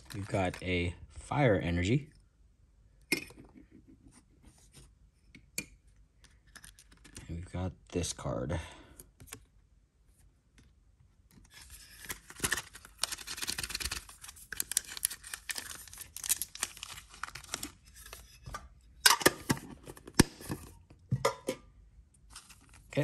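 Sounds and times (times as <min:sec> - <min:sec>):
foil wrappers crinkling: 0:00.0 - 0:00.6, 0:12.0 - 0:18.2.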